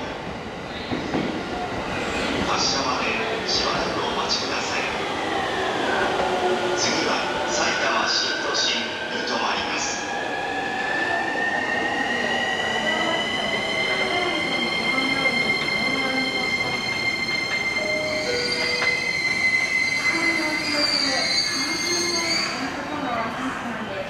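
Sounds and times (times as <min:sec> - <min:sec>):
electric train high-pitched whine: 0:10.0 - 0:22.1.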